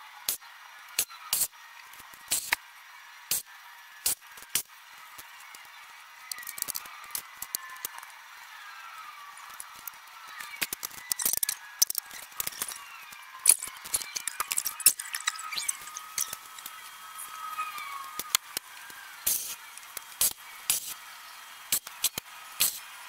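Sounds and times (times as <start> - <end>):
sharp clicks: 9.4 - 16.9, 17.7 - 21.0.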